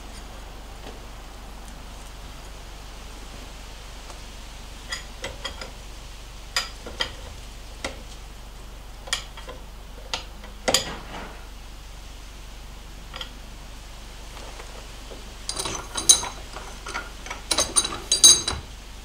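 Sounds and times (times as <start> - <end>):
metal tool clicks and clinks: 15.5 - 18.6.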